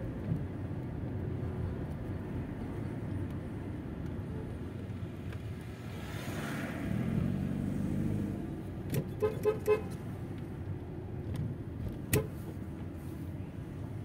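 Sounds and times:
car engine and road noise: 0.0s - 14.0s
car horn tooting: 9.1s - 10.0s.

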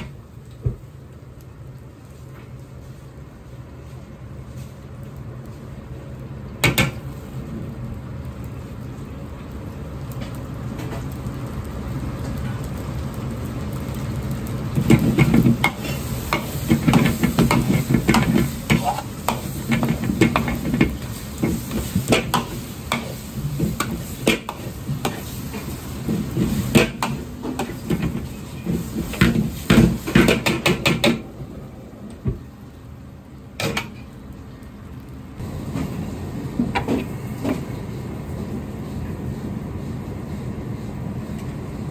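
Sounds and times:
fried rice sizzling in a wok: 0.0s - 31.3s, 32.2s - 41.9s.

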